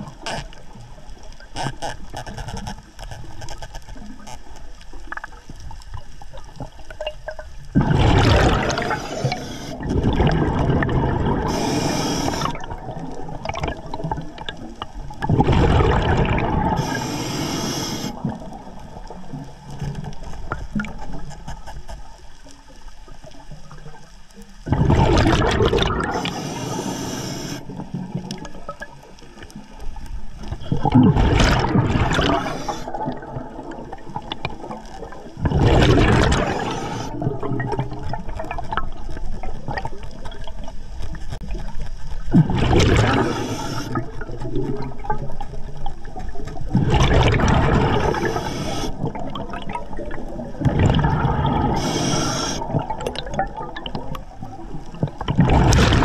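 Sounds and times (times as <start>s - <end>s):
exhaled bubbles underwater: 4.0s - 21.6s, 22.5s - 56.0s
faint clicking: 26.1s - 30.7s.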